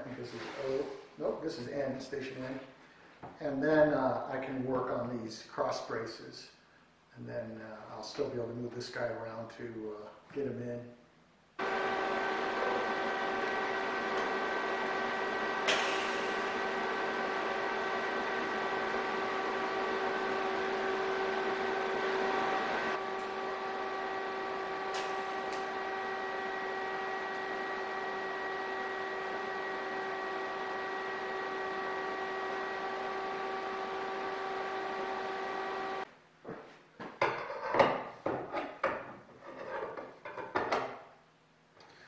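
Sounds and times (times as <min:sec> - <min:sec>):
welding arc buzzing hiss: 0:11.7 - 0:30.0.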